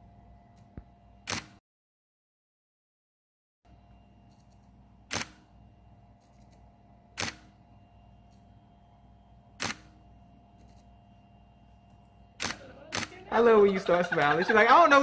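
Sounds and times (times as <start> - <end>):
faint steady hum: 0.0 - 1.2, 3.7 - 15.0
camera shutter firing: 1.2 - 1.6, 5.1 - 5.5, 7.2 - 7.6, 9.6 - 10.0, 12.4 - 13.2.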